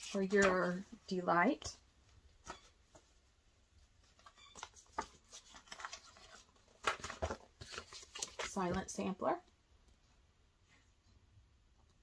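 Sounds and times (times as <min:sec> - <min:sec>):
faint paper rustling: 0:00.0 - 0:09.1.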